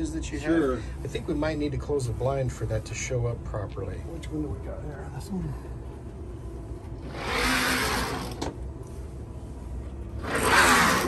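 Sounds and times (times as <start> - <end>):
window blind sliding: 7.0 - 8.5, 10.2 - 11.0.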